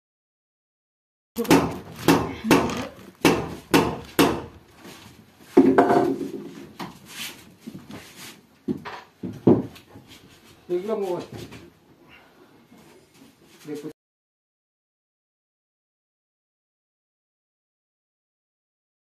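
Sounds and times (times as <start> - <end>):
hammer knocking on wood: 1.4 - 4.6, 8.7 - 9.8.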